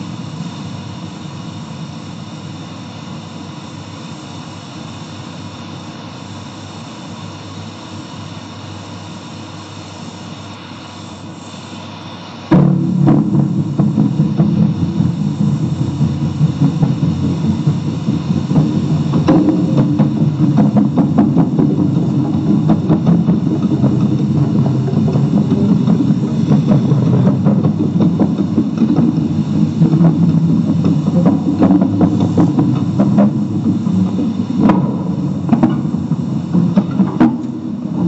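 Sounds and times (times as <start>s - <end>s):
low sustained drone: 10.0s - 38.0s
rapid clicking strikes: 12.5s - 38.0s.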